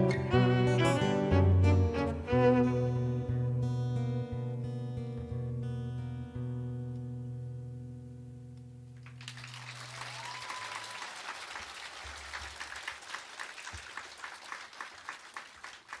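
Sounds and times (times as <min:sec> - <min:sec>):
audience applauding: 0:09.0 - 0:16.0.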